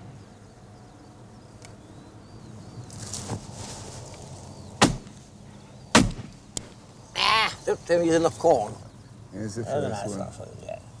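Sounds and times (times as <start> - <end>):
low steady background noise: 0.0 - 11.0
shotgun shot: 4.8 - 5.1, 5.9 - 6.4.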